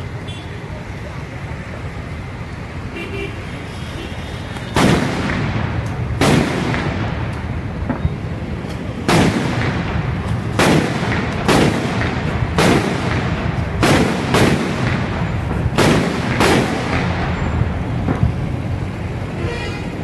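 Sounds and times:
firecrackers exploding: 4.5 - 18.9
steady low rumble: 4.8 - 20.0.

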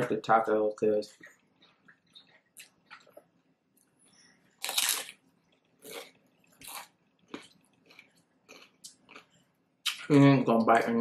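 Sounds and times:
tortilla chips crunching: 4.6 - 5.2.

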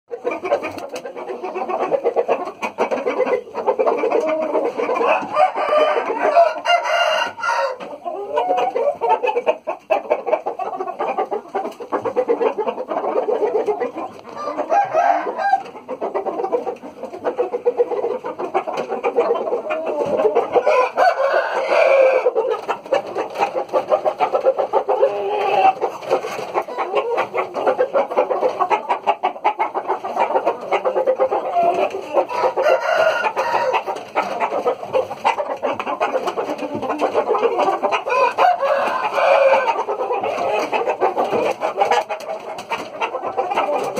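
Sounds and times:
chickens clucking: 0.1 - 43.9
roosters crowing: 4.2 - 9.0, 14.3 - 15.8, 19.8 - 24.2, 30.2 - 35.2, 36.0 - 42.1.

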